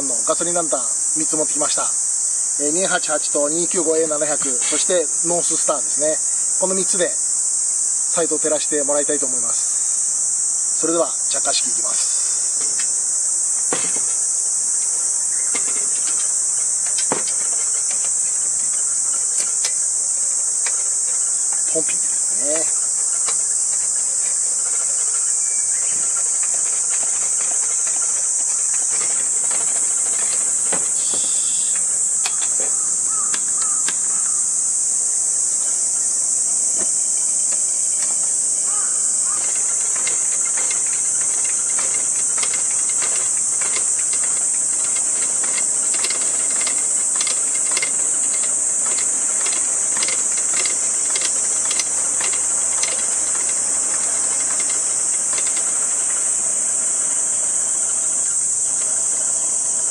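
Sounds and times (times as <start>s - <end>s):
high-pitched insect chorus: 0.0s - 59.9s
lantern pumping: 11.0s - 34.2s, 36.6s - 57.1s.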